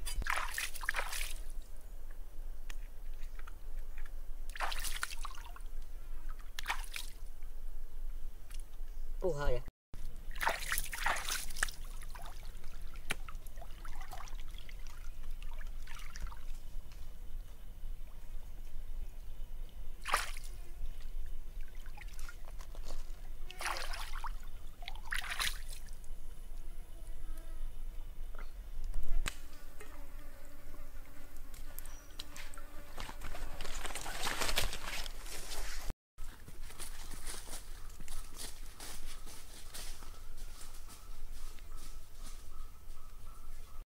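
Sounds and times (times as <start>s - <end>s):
water splashing and trickling: 0.0s - 1.7s, 3.0s - 7.4s, 10.0s - 17.0s, 19.6s - 26.2s
flies buzzing: 29.0s - 33.6s.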